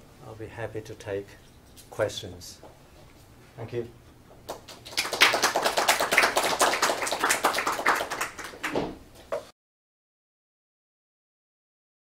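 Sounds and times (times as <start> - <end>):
audience applauding: 4.5 - 8.8.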